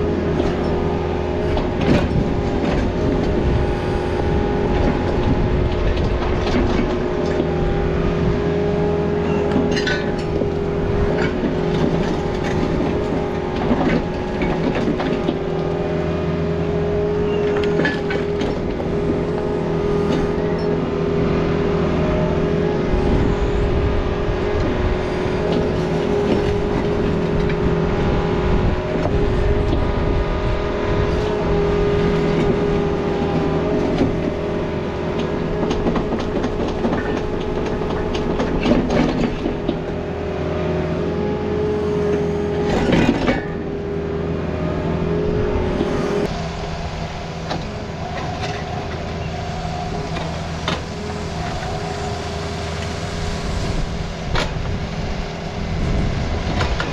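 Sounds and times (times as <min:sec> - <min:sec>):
excavator diesel engine running: 0:00.0 - 0:56.9.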